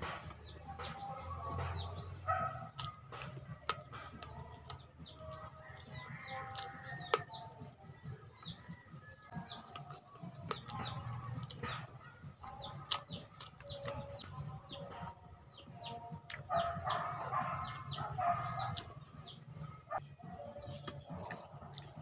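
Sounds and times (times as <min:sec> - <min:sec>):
chickens clucking: 0:00.0 - 0:22.0
chewing clicks: 0:02.6 - 0:08.6, 0:09.3 - 0:14.3, 0:17.6 - 0:19.0, 0:20.7 - 0:22.0
rooster crowing: 0:05.6 - 0:07.1.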